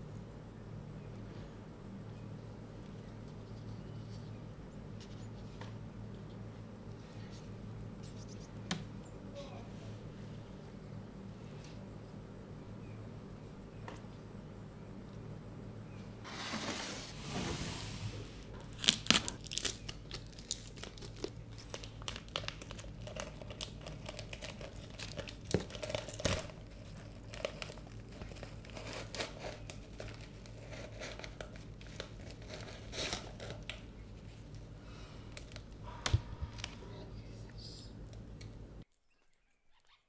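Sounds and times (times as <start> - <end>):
packaging crinkling: 18.5 - 34.7.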